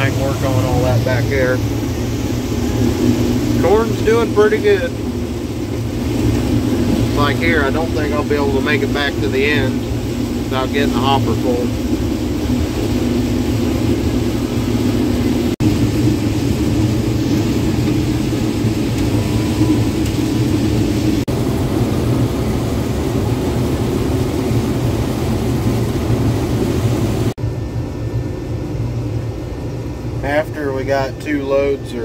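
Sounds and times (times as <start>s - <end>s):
combine engine and threshing hum: 0.0s - 32.0s.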